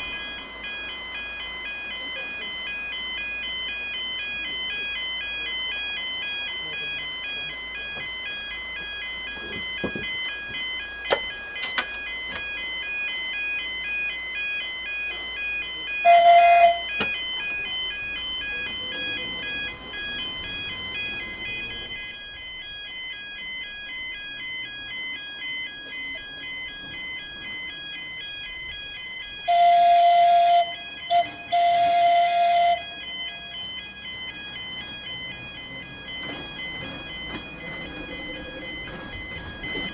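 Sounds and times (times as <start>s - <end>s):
level crossing warning alarm: 0.0s - 39.9s
loud horn blasts: 16.0s - 16.9s.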